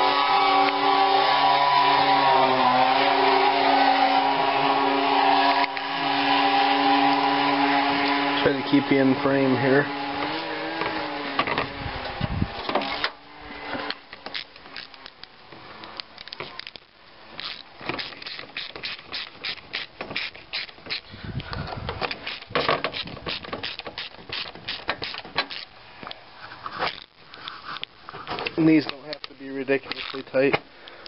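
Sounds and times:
hand ratchet clicking: 17.4 - 25.7, 29.9 - 31.0.

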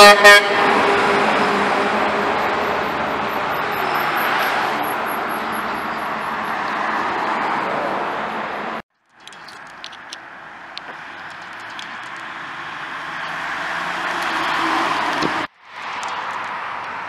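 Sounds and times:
traffic passing close: 0.0 - 17.0.

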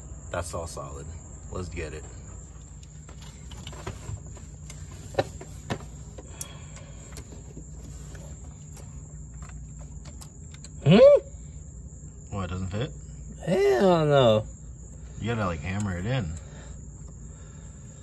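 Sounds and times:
crickets chirring: 0.0 - 18.0
person exclaiming: 10.8 - 11.3, 13.4 - 14.4.

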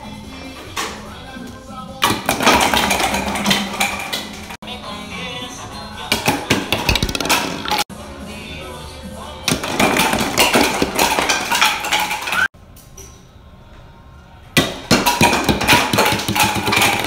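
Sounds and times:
plastic bowling pins clattering: 2.0 - 4.6, 6.1 - 7.8, 9.5 - 12.5, 14.6 - 17.0.

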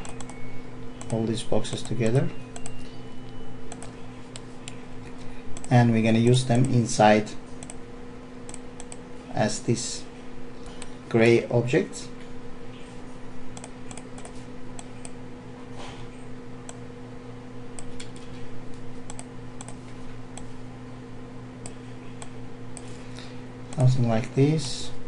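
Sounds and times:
keyboard and mouse clicks: 0.0 - 0.4, 2.6 - 2.9, 3.7 - 4.8, 7.6 - 7.8, 13.6 - 15.2, 19.1 - 19.8
low hum: 0.0 - 25.0.

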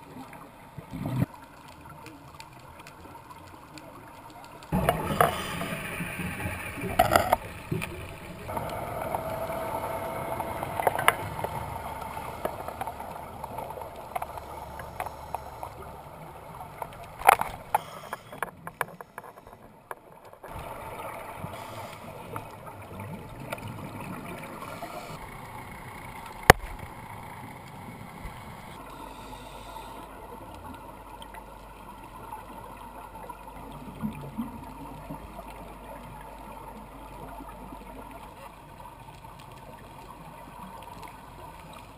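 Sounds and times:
steady watery hum: 0.0 - 41.9
underwater bubbles gurgling: 0.0 - 41.9
clicks: 6.8 - 20.6.

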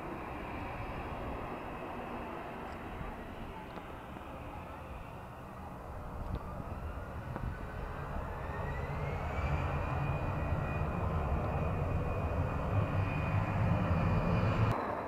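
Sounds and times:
jet engine whine: 0.0 - 15.0
low rumble: 3.0 - 14.8.

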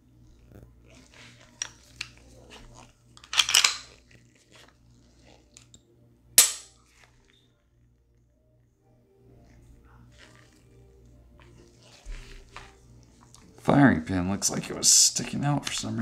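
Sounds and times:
pistol slide racked: 3.2 - 3.9.

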